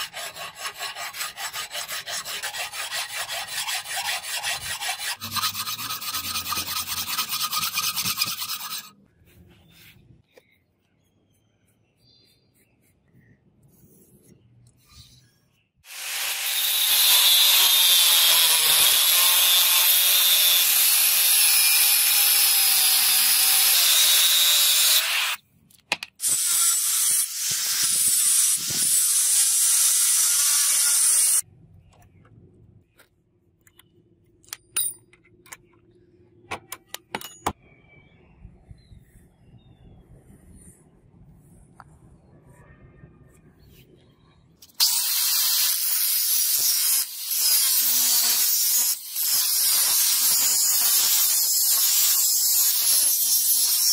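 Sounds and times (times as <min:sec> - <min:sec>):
angle grinder cutting steel: 0:15.9 - 0:25.4, 0:26.2 - 0:31.4, 0:44.7 - 0:53.9.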